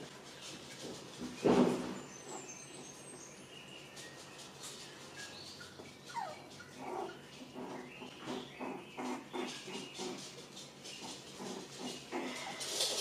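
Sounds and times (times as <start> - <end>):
puppy yips: 5.2 - 7.1
puppy whine: 5.2 - 9.9
puppies whimpering: 5.2 - 10.2.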